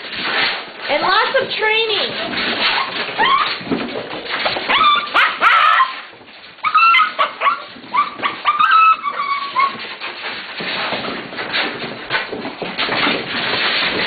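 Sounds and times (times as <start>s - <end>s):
puppies whining and yipping: 2.2s - 3.8s, 4.7s - 10.1s.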